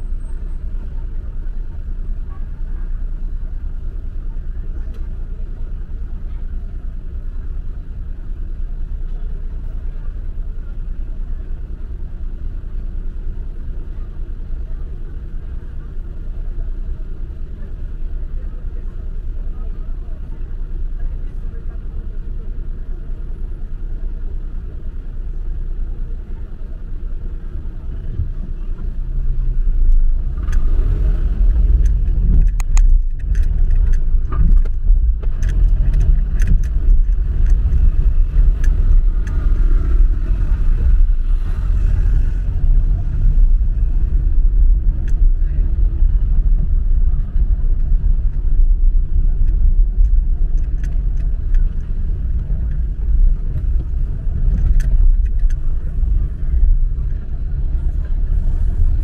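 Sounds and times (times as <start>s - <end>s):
car engine and road rumble: 0.0s - 59.0s
light clicks and rattles: 31.4s - 39.5s, 44.6s - 58.4s.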